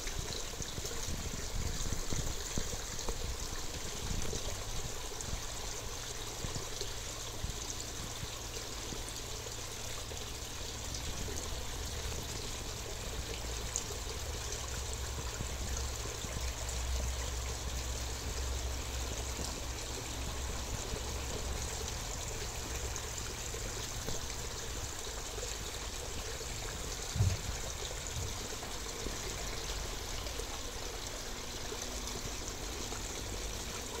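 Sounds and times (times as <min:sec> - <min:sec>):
water trickling: 0:00.0 - 0:34.0.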